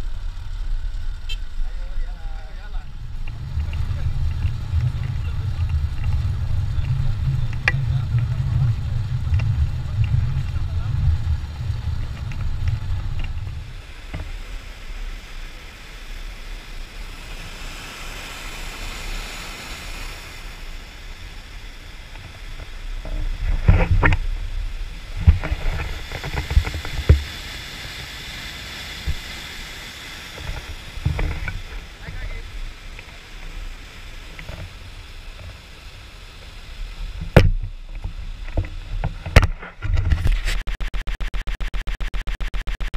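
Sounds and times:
low rumble: 0.0s - 17.2s
whitewater rushing: 2.4s - 37.3s.

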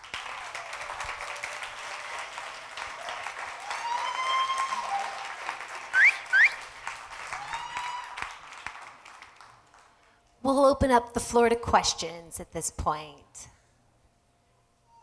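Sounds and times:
audience applauding: 0.0s - 10.2s
whoops: 0.2s - 6.6s, 7.2s - 8.5s
sharp rising whistles: 3.9s - 6.6s.

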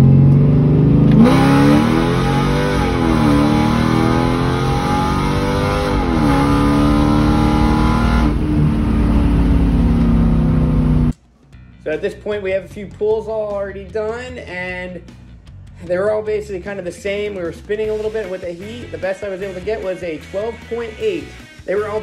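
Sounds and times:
car engine accelerating hard: 0.0s - 11.2s.

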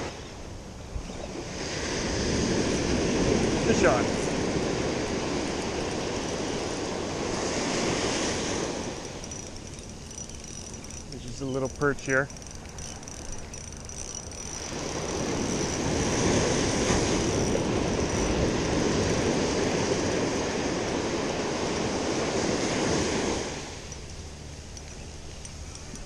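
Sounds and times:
ocean surf breaking: 1.4s - 23.9s.

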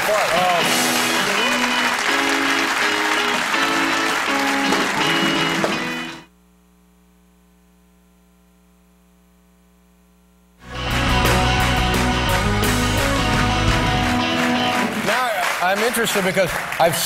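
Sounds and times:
audience applause: 0.0s - 6.2s, 10.6s - 17.0s
band playing guitar-led tune: 0.0s - 6.3s, 10.6s - 16.5s
faint steady hum: 6.2s - 10.6s.

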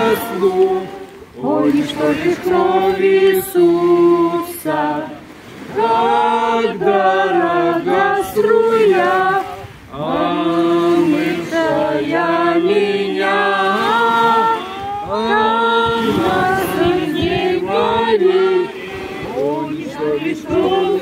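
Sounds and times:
group singing a hymn unaccompanied: 0.0s - 21.0s.

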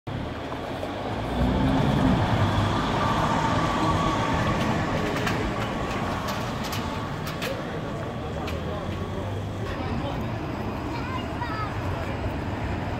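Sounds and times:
trolleybus driving past: 0.1s - 12.9s.

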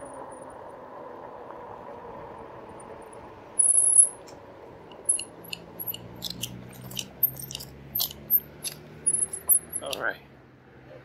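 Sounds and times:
bike tire clicks and crunches: 4.9s - 10.0s.

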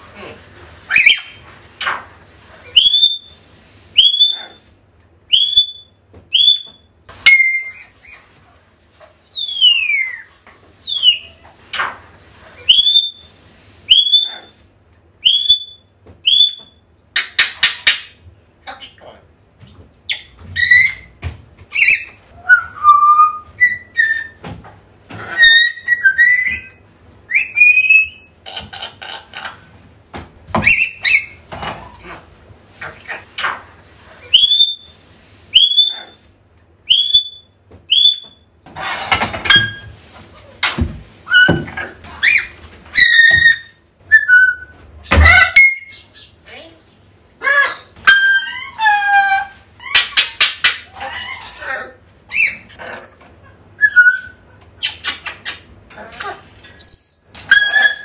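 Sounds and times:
parrot whistling: 2.6s - 3.4s, 4.0s - 4.6s, 5.3s - 8.2s, 9.3s - 11.4s, 12.7s - 13.3s, 13.9s - 14.5s, 15.2s - 16.8s, 21.8s - 24.4s, 25.3s - 28.3s, 34.2s - 34.9s, 35.6s - 36.2s, 36.9s - 38.4s, 42.2s - 44.7s, 52.3s - 55.6s, 56.8s - 58.0s
parrot harsh rasping squawks: 47.4s - 55.4s, 56.0s - 58.0s.

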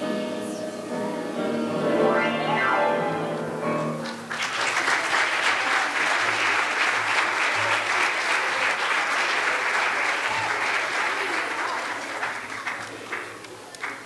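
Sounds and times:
children's choir singing with piano: 0.0s - 4.4s
audience applause: 4.0s - 14.0s.

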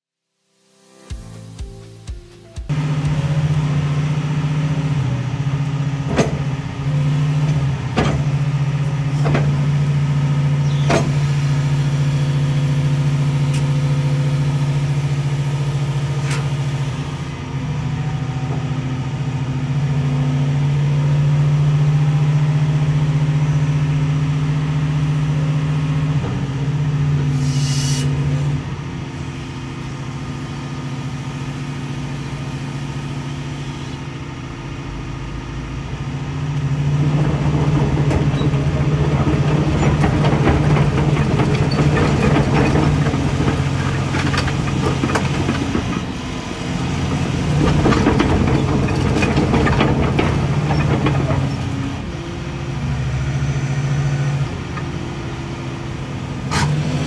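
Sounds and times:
excavator diesel engine running: 1.1s - 57.0s
hydraulic hiss: 27.3s - 28.2s.

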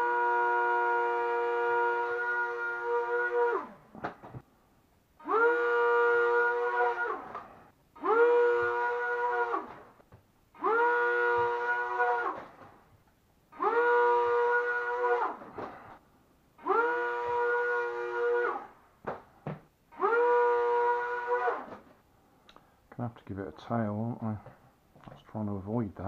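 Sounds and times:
small electric motors whining: 5.2s - 9.9s, 10.6s - 12.5s, 13.6s - 15.6s, 16.6s - 18.7s, 19.9s - 21.8s.

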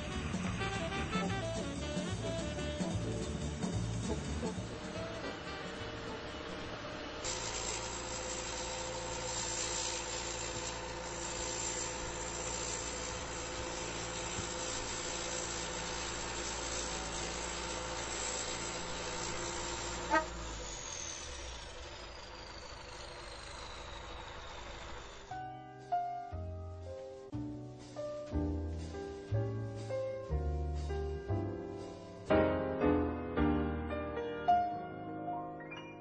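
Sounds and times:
high whine winding down: 0.0s - 25.7s
heavy vehicle engine running: 0.0s - 32.3s.

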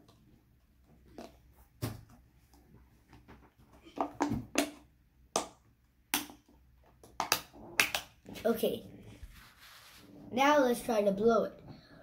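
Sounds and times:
rubber balloon snapping: 4.2s - 8.3s.

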